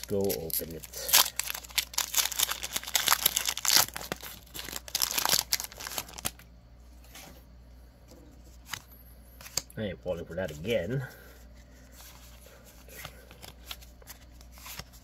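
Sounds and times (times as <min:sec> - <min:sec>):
foil wrapper crinkling and tearing: 0:00.0 - 0:06.4.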